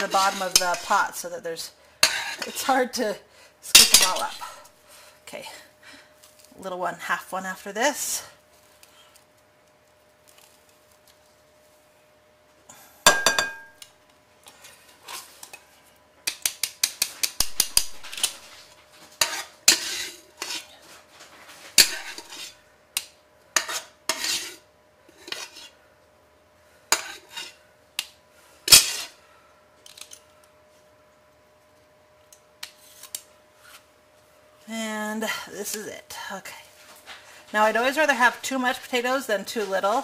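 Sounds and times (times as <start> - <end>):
metal kitchenware clanking: 3.7 - 4.5, 13.1 - 13.8.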